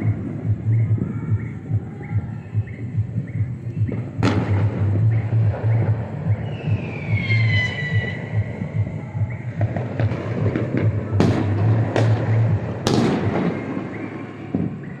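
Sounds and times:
fireworks popping and crackling: 0:03.7 - 0:15.0
firework bangs: 0:03.9 - 0:15.0
firework whistle falling: 0:06.4 - 0:08.4.

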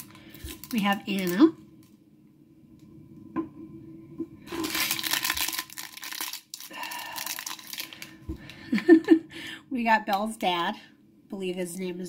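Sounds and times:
plastic bag crinkling and tearing: 0:00.0 - 0:01.5, 0:04.5 - 0:08.5.

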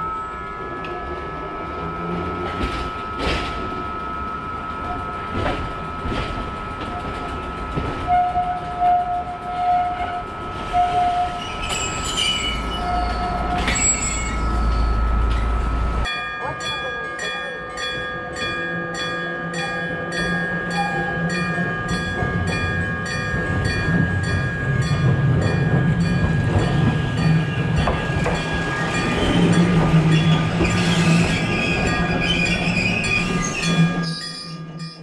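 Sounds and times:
level-crossing warning bell: 0:00.0 - 0:35.0
tram wheels rumbling on rails: 0:00.0 - 0:35.0
tram brakes squealing and hissing: 0:04.8 - 0:16.1, 0:19.6 - 0:35.0.

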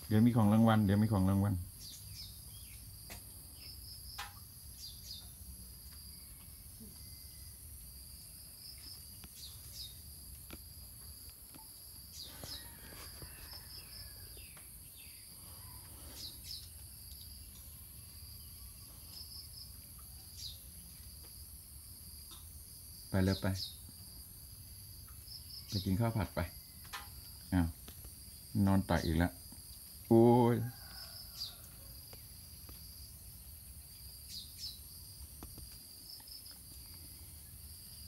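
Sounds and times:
soft rustles of movement: 0:12.2 - 0:14.6.

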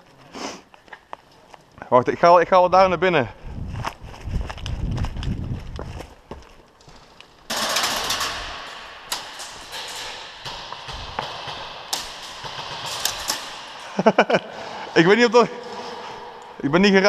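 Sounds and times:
footsteps: 0:00.0 - 0:17.0
gear rattling: 0:06.8 - 0:14.4.

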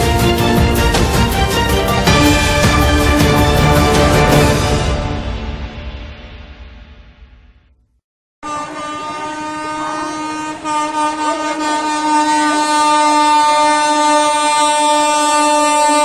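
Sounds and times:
train horn long blast: 0:08.4 - 0:16.0.

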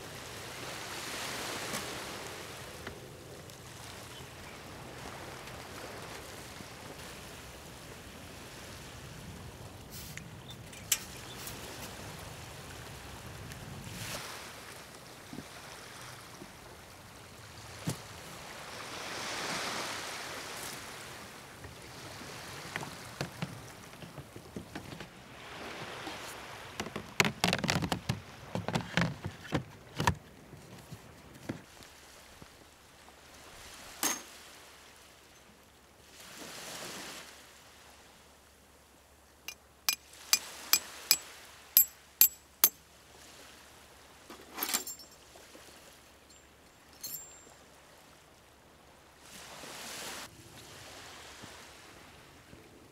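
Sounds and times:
surf washing: 0:00.0 - 0:10.4, 0:11.2 - 0:27.3, 0:49.1 - 0:52.5.

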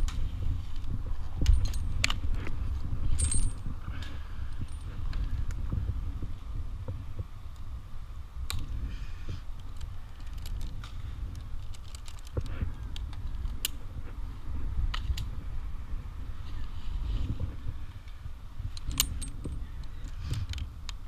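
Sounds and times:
metal climbing hardware clinking: 0:01.2 - 0:05.3, 0:18.7 - 0:20.6.

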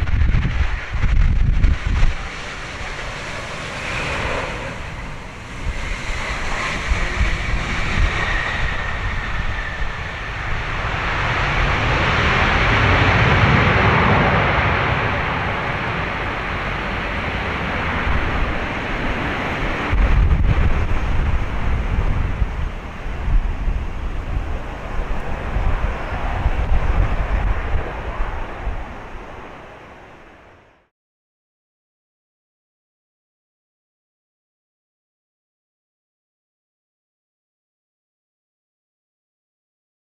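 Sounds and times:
wind buffeting microphone: 0:00.0 - 0:30.8
rush of jet engine noise: 0:00.0 - 0:30.9
thin jet engine whine: 0:00.0 - 0:30.9.

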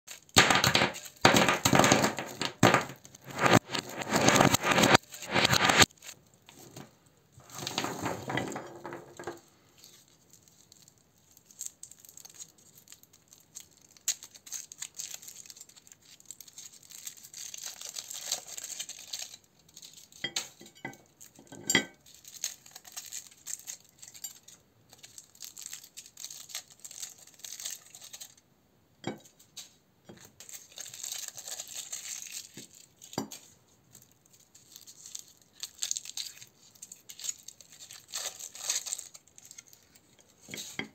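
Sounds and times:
foil wrappers crinkling and tearing: 0:00.1 - 0:06.8, 0:09.8 - 0:21.4, 0:22.0 - 0:28.4, 0:30.1 - 0:40.8
chocolates clinking on ceramic plate: 0:00.2 - 0:05.9, 0:07.4 - 0:09.4, 0:20.2 - 0:24.5, 0:30.1 - 0:33.5.

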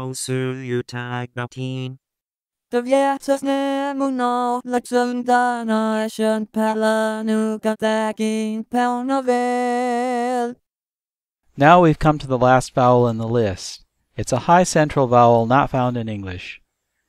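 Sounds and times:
synthesized singing voice: 0:00.0 - 0:02.0, 0:02.7 - 0:10.6.

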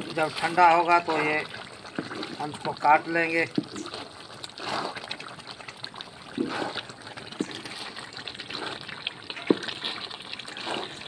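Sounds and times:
thick mixture sloshing and sizzling: 0:00.0 - 0:11.0.

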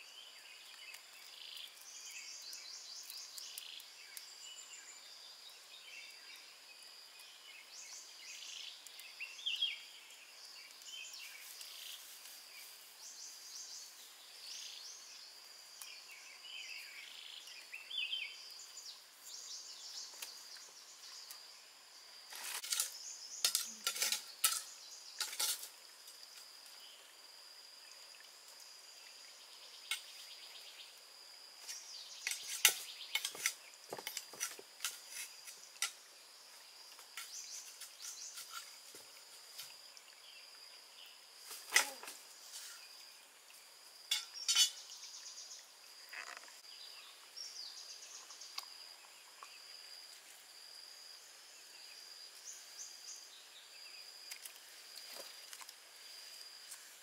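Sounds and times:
birds chirping: 0:44.1 - 0:49.2.

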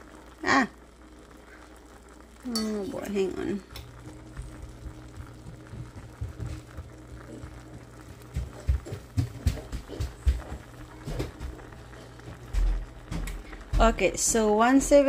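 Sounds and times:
steady low hum: 0:00.0 - 0:15.0
thermometer probe knocks and thumps: 0:04.3 - 0:06.9, 0:07.7 - 0:11.6.

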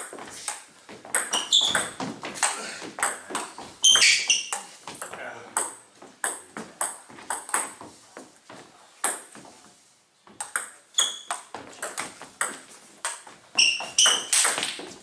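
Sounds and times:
short high squeaks: 0:01.3 - 0:02.0, 0:03.8 - 0:04.7, 0:10.9 - 0:11.5, 0:13.6 - 0:14.6.

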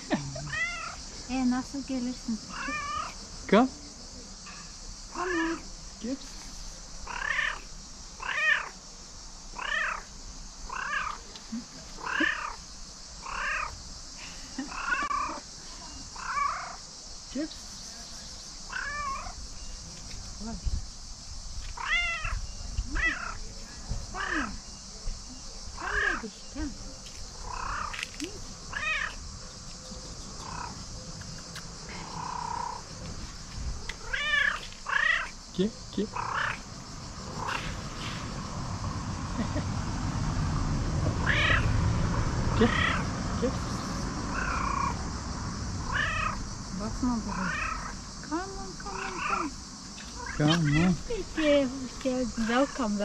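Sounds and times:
cat meowing: 0:00.4 - 0:01.0, 0:02.5 - 0:03.2, 0:07.1 - 0:07.6, 0:08.2 - 0:08.8, 0:09.6 - 0:10.1, 0:10.7 - 0:11.2, 0:13.2 - 0:13.8, 0:18.7 - 0:19.4, 0:21.8 - 0:23.4, 0:24.2 - 0:24.5, 0:25.8 - 0:26.2, 0:28.7 - 0:29.2, 0:34.0 - 0:35.3, 0:41.2 - 0:41.7, 0:42.6 - 0:43.1, 0:45.9 - 0:46.4, 0:47.3 - 0:48.0, 0:48.9 - 0:49.5, 0:50.2 - 0:51.0.

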